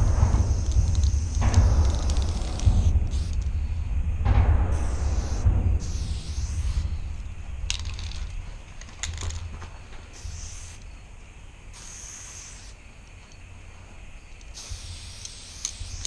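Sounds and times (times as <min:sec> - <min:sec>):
sharp clicks: 0:00.0 - 0:03.6
spray can hissing: 0:00.0 - 0:03.6, 0:04.7 - 0:08.4, 0:10.1 - 0:10.9, 0:11.7 - 0:12.8, 0:14.5 - 0:16.0
low rumble: 0:00.0 - 0:11.6.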